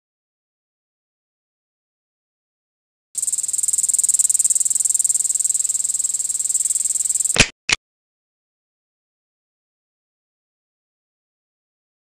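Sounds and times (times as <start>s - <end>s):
insect trilling: 3.2s - 7.6s.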